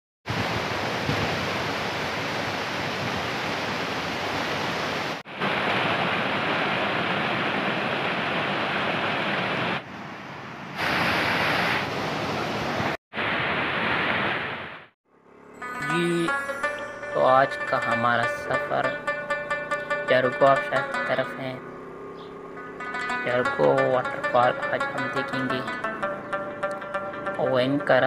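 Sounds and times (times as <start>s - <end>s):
waterfall and stream rushing: 0.3s - 14.9s.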